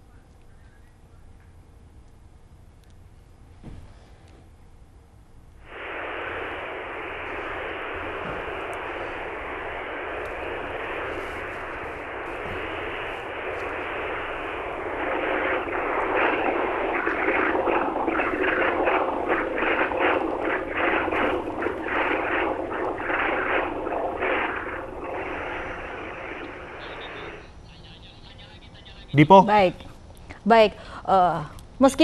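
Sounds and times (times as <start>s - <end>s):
rushing noise over telephone: 5.6s - 29.4s.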